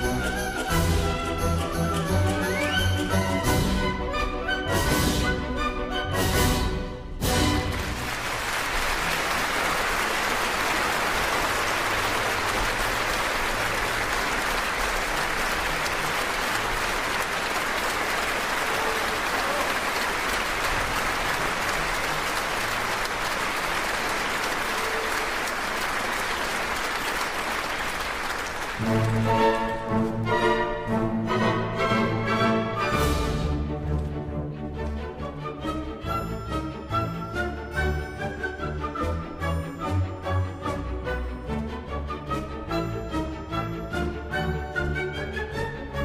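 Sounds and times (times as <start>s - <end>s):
audience applauding: 7.4s - 30.0s.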